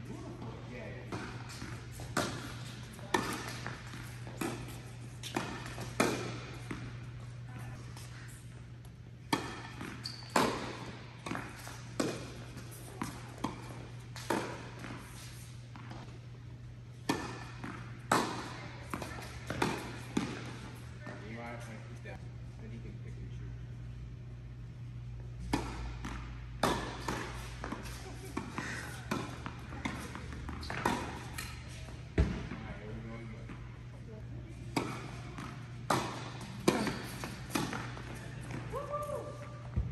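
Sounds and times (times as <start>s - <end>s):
steady low hum: 0.0s - 39.9s
tennis balls bouncing on hard court: 0.4s - 8.3s, 9.2s - 16.1s, 17.0s - 21.2s, 25.4s - 32.7s, 34.6s - 39.9s
tennis balls struck by rackets: 1.0s - 7.2s, 9.2s - 16.0s, 17.0s - 21.2s, 25.4s - 32.6s, 34.6s - 38.8s.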